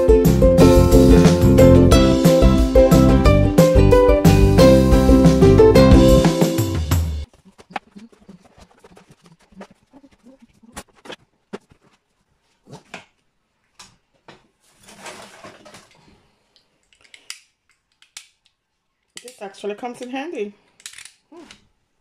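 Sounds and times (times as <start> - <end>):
shelf liner rustling: 10.5 - 16.2.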